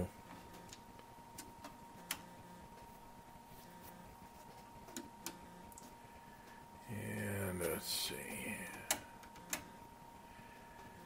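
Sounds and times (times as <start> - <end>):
faint steady whine: 0.0 - 11.0
faint clicks of oscilloscope controls: 0.3 - 3.0, 3.6 - 6.6.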